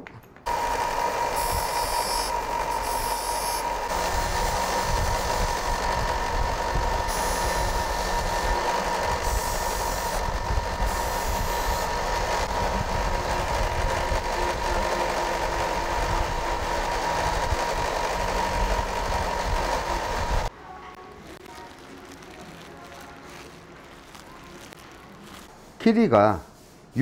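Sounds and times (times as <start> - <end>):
belt sander running: 0.5 - 20.5.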